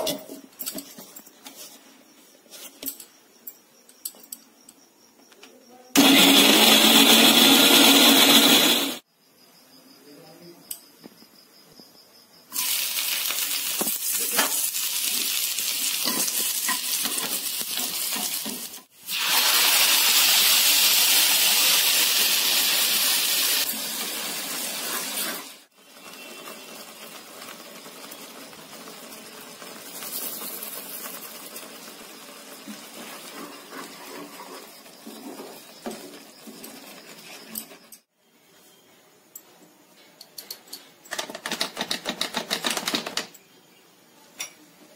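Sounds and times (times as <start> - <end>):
garlic sizzling in hot oil: 12.5 - 37.5.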